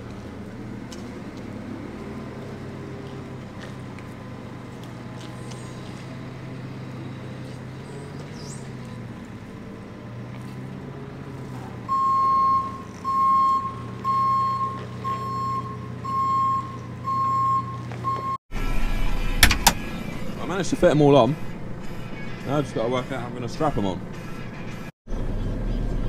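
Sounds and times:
diesel engine running: 0:00.0 - 0:26.0
reversing alarm beeping: 0:11.9 - 0:19.5.

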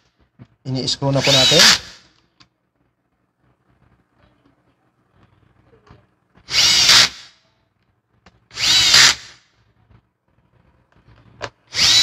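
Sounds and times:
power drill driving screws: 0:01.2 - 0:02.0, 0:06.5 - 0:07.3, 0:08.5 - 0:09.4, 0:11.7 - 0:12.0.

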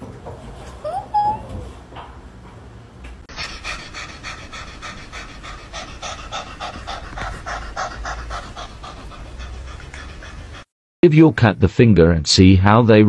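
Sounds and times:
cat panting: 0:03.3 - 0:10.7.

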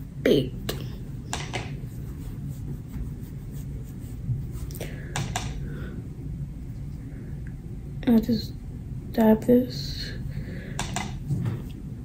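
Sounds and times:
low room hum: 0:00.0 - 0:12.0
makeup brush clicks and taps: 0:01.3 - 0:01.7, 0:05.2 - 0:05.6, 0:10.8 - 0:11.2.

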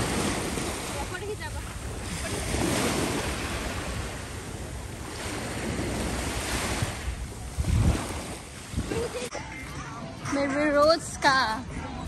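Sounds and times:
wind buffeting microphone: 0:00.0 - 0:09.3
small waves lapping: 0:00.0 - 0:09.7.

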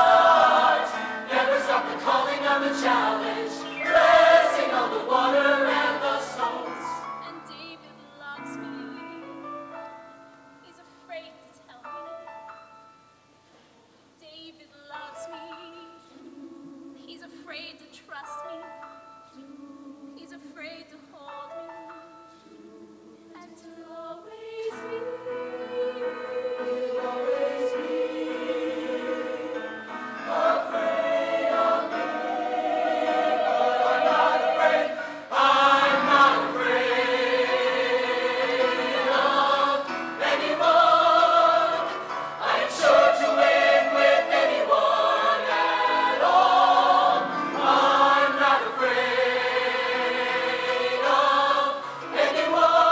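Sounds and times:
choir singing held chords: 0:00.0 - 0:07.3, 0:22.4 - 0:52.9.

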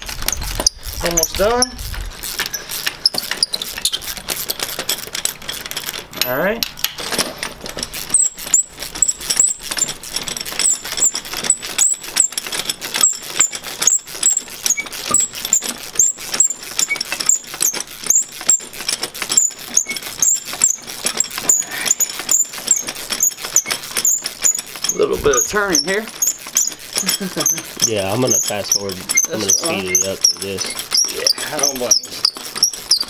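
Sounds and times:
ratchet wrench clicking: 0:00.0 - 0:33.0.

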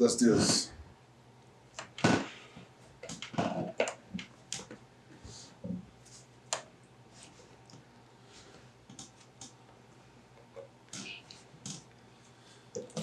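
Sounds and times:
plastic bottles tapping and crinkling: 0:03.0 - 0:04.8.

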